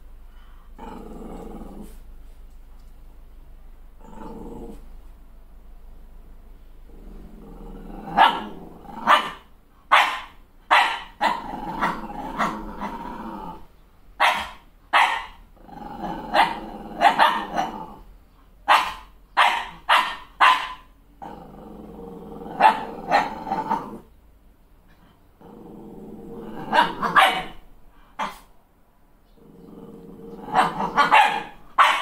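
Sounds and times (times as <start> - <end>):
puppy growling: 0.7 - 2.1, 4.0 - 5.0, 6.9 - 9.5, 10.8 - 13.7, 15.2 - 18.2, 20.6 - 24.1, 24.9 - 28.4, 29.3 - 32.0
puppy barking: 8.2 - 12.6, 14.2 - 15.4, 16.4 - 17.7, 18.6 - 20.9, 22.6 - 23.8, 26.6 - 27.6, 30.5 - 32.0.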